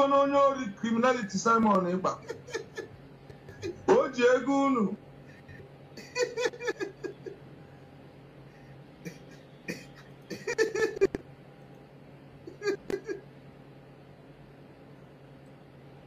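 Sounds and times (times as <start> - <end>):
man chuckling: 2.1 - 4.0, 5.4 - 7.5, 9.0 - 11.2, 12.5 - 13.3.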